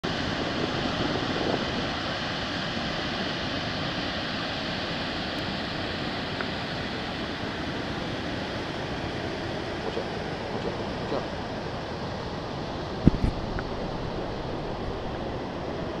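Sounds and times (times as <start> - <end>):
water rushing over rocks: 0.1 - 16.0.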